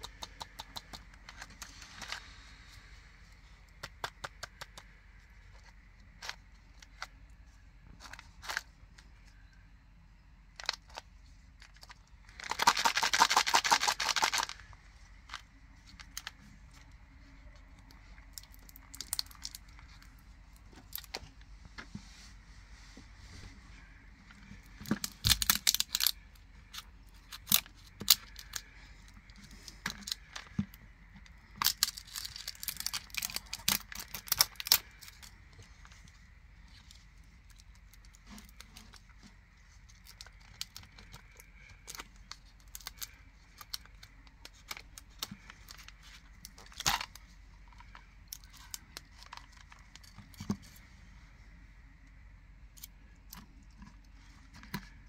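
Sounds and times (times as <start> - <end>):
small clicks and rustles: 10.5 - 51.1
plastic packaging crinkling and tearing: 11.6 - 16.6, 18.0 - 21.2, 24.4 - 28.8, 31.5 - 36.0, 39.9 - 50.6.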